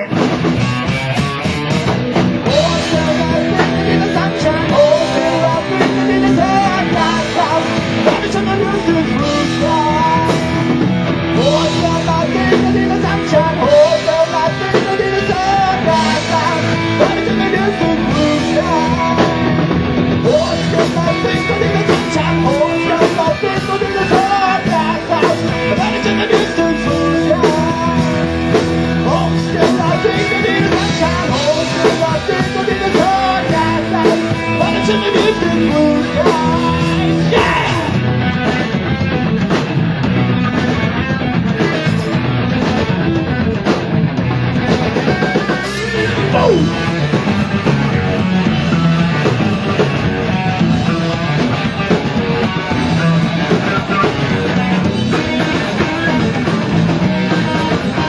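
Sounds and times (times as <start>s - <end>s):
drum kit: 0.0s - 58.0s
electric guitar: 0.0s - 58.0s
man singing into a microphone: 2.4s - 38.7s, 45.0s - 47.6s, 52.9s - 58.0s.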